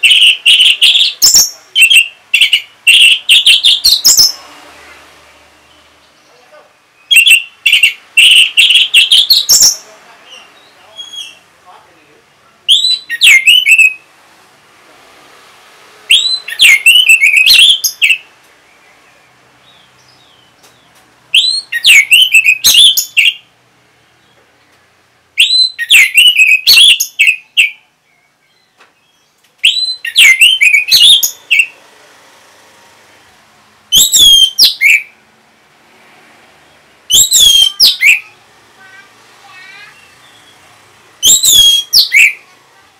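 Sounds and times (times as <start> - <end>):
thrush singing whistled phrases: 0.0 - 4.4, 7.0 - 9.8, 12.7 - 14.0, 16.1 - 18.3, 21.3 - 23.4, 25.4 - 27.8, 29.6 - 31.7, 33.9 - 35.1, 37.1 - 38.4, 41.2 - 42.4.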